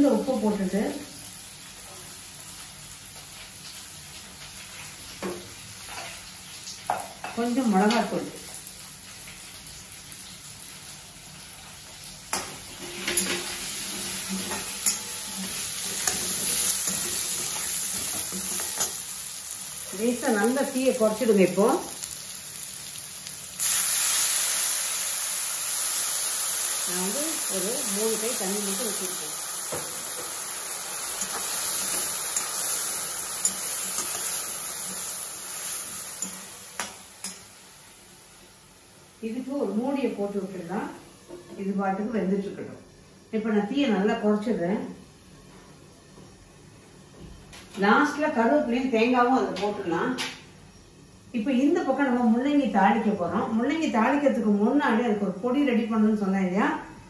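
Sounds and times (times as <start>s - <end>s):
vegetables sizzling in oil: 0.0s - 44.0s.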